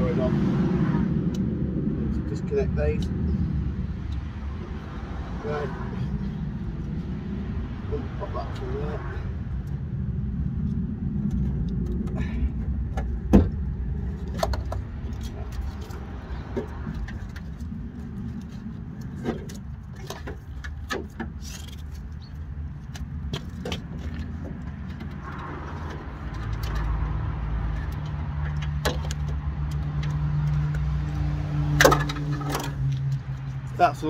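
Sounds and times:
low drone: 0.0s - 19.9s.

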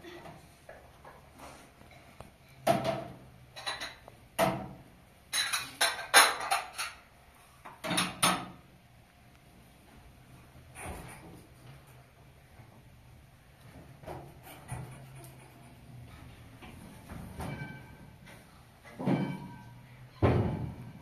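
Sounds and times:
dishes and cutlery clinking: 2.0s - 4.1s, 5.3s - 7.0s, 17.2s - 21.0s.

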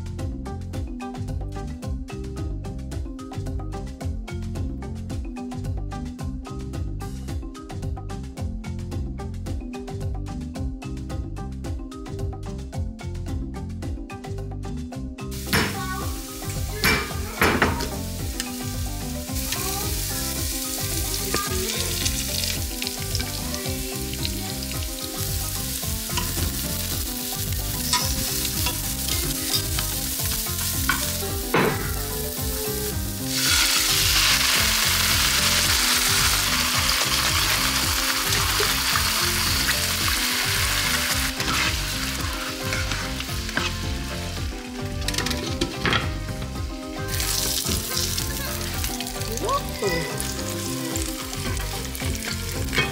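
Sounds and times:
sauce hissing in a hot pan: 15.3s - 44.2s
onion sizzling in a skillet: 15.3s - 52.9s
metal tongs clacking: 27.8s - 31.9s, 45.0s - 46.1s, 52.1s - 52.9s.

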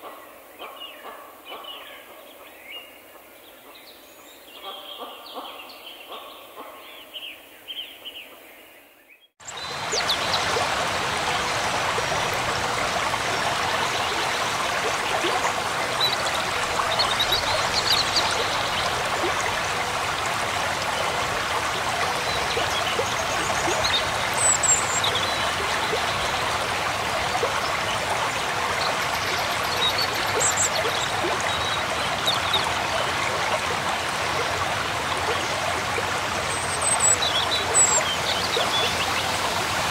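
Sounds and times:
stream rushing over boulders: 9.4s - 39.9s.

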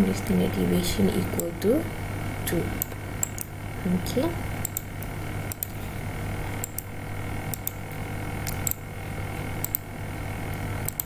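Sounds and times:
steady low hum: 0.0s - 11.0s
computer mouse clicking: 1.4s - 1.6s, 2.8s - 3.5s, 4.6s - 5.8s, 6.5s - 6.9s, 7.5s - 7.8s, 8.4s - 8.8s, 9.6s - 9.9s.

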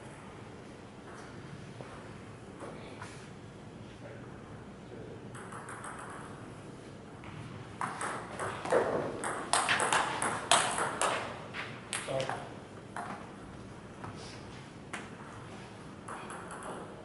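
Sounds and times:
ping pong ball hitting paddles: 5.3s - 6.4s, 7.8s - 13.2s, 16.0s - 17.0s.

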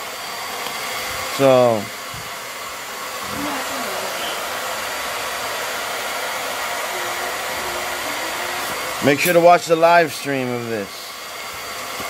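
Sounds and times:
air appliance rushing: 3.1s - 12.0s.

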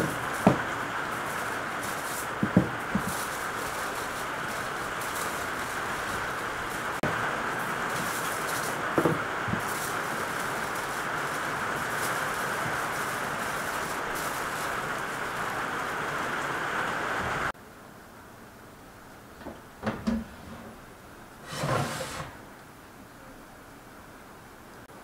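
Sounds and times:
aluminium foil crinkling: 0.0s - 15.9s
steady hiss: 0.0s - 25.0s.

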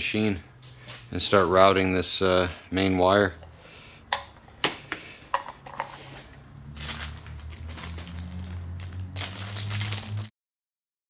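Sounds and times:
rustling and crackling: 5.6s - 10.3s.

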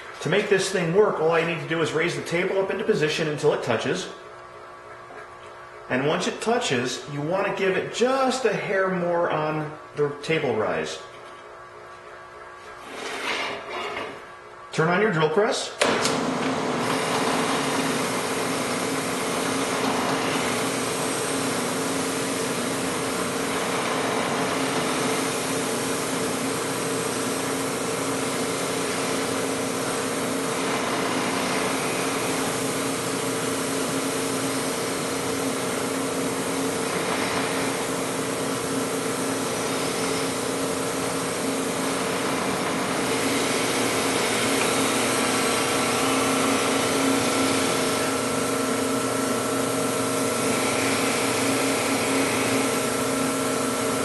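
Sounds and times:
drill press motor hum: 15.8s - 54.0s.

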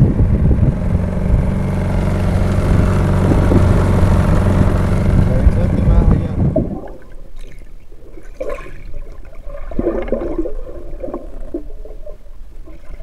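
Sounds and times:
underwater gurgling and bubbling: 2.6s - 13.0s.

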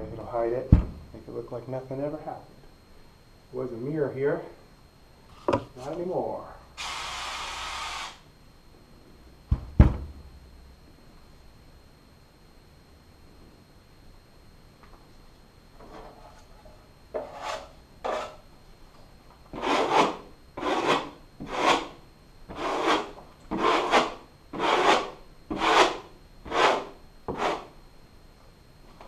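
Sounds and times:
drywall knife scraping: 17.1s - 18.4s, 19.5s - 27.7s.

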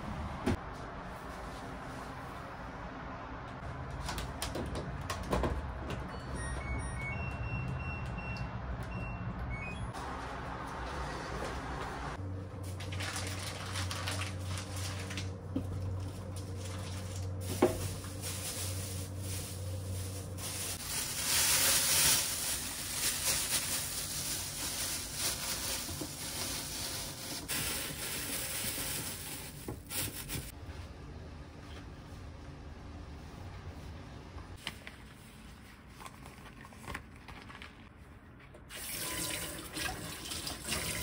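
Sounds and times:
plastic bag rustling: 12.6s - 30.5s.

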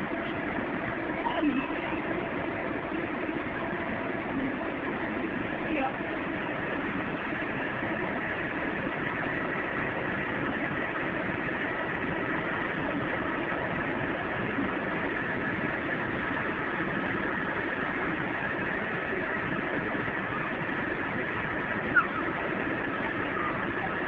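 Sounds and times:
electric blower fan running: 0.0s - 24.0s.

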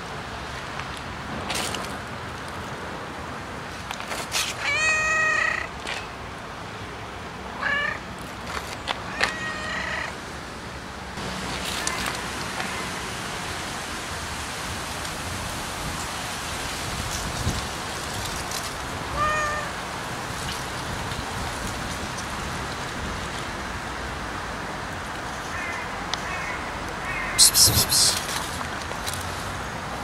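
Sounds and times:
cat meowing: 4.6s - 5.7s, 7.6s - 8.0s, 9.1s - 10.2s, 19.1s - 19.8s.

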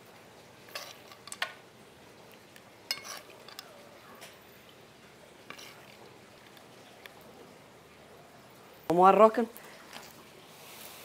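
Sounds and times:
utensils clinking against cookware: 2.9s - 4.4s.

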